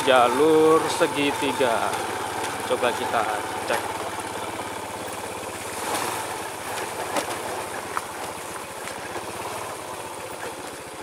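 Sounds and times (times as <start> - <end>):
sharp knocks over bumps: 5.8 - 9.5.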